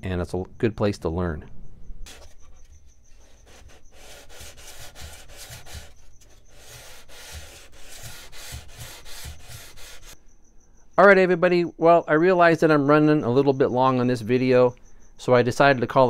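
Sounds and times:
sandpaper rubbing on wood: 0:03.2 - 0:10.2.

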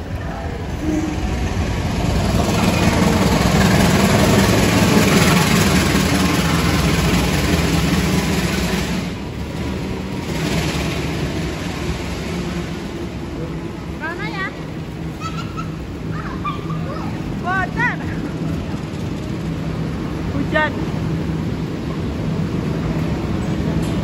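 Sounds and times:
diesel locomotive engine drone: 0:00.0 - 0:24.0
train coaches rumbling: 0:00.0 - 0:24.0.

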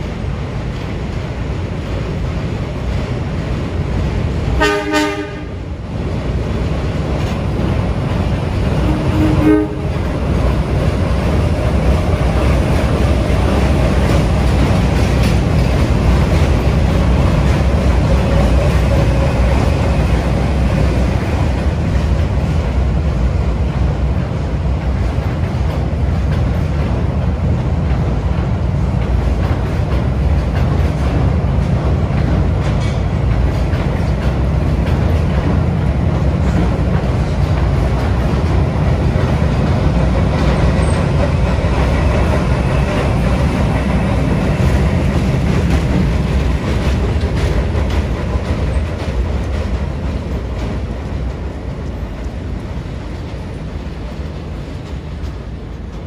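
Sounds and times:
train wheels rolling: 0:00.0 - 0:56.0
locomotive horn blasts: 0:04.6 - 0:05.6, 0:08.8 - 0:09.9.

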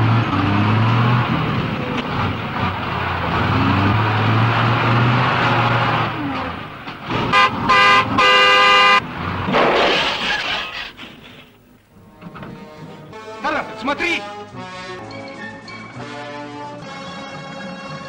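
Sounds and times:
truck engine droning: 0:00.0 - 0:18.0
truck horn toots: 0:07.2 - 0:09.1.

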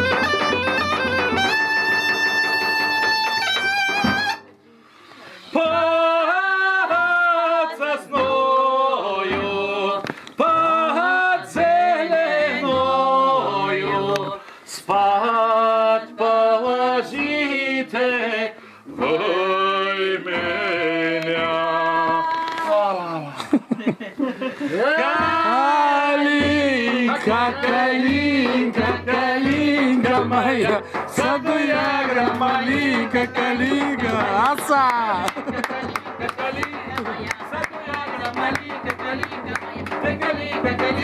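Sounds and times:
bagpipe playing over drone: 0:00.0 - 0:04.4
man singing loudly: 0:05.6 - 0:14.2, 0:14.8 - 0:22.4, 0:24.8 - 0:39.2
woman singing: 0:26.4 - 0:41.0.

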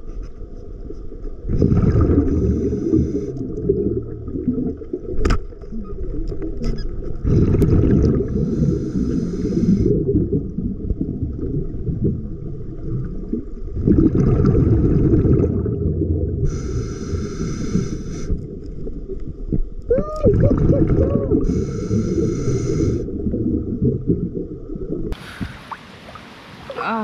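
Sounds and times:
muffled rumble of water: 0:00.0 - 0:27.0
breathing through a snorkel: 0:02.1 - 0:03.6, 0:07.2 - 0:10.1, 0:16.5 - 0:18.5, 0:21.4 - 0:23.2, 0:25.2 - 0:25.7.

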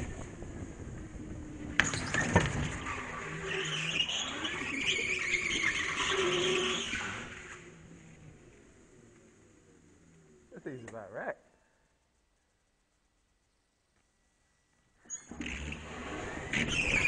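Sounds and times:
wind on camera: 0:00.0 - 0:03.5
go-kart motor hum: 0:00.0 - 0:10.6, 0:15.2 - 0:17.0
go-kart tyres squealing: 0:00.0 - 0:10.6, 0:15.0 - 0:17.0.

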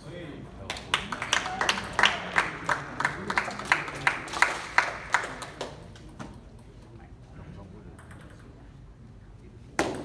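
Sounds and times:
spectators clapping: 0:00.7 - 0:06.0.

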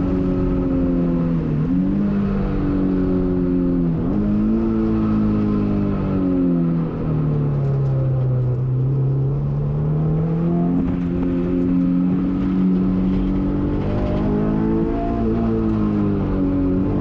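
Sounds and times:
car engine accelerating: 0:00.0 - 0:17.0.

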